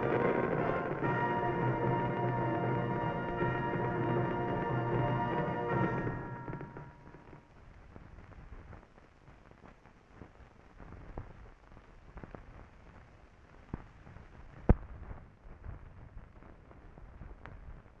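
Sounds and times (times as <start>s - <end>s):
film soundtrack crackle and pops: 0.0s - 18.0s.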